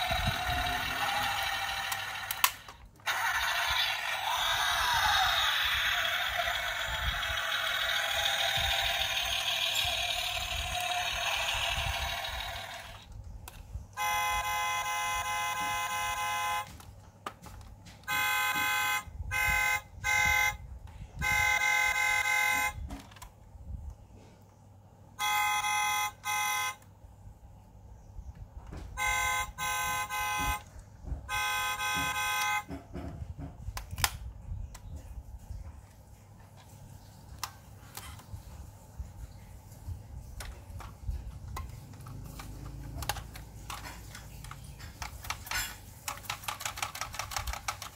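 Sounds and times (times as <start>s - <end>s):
tinny engine noise effect: 0.0s - 13.1s, 41.1s - 45.8s
thin electronic horn blasts: 14.0s - 16.7s, 18.1s - 20.6s, 21.2s - 22.8s, 25.2s - 26.8s, 29.0s - 30.7s, 31.3s - 32.7s.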